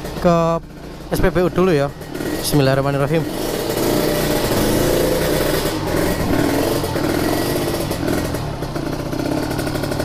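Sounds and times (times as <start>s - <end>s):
motorcycle engine revving: 0.0s - 10.0s.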